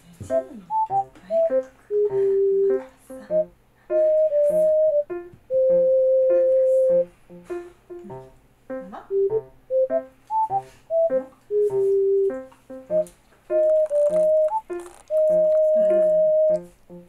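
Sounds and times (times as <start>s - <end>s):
light tune of pitched notes: 9.2s - 16.6s.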